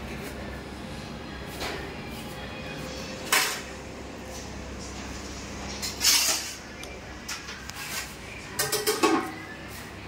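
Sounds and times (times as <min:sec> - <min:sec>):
metal pots clattering: 0:08.6 - 0:09.4.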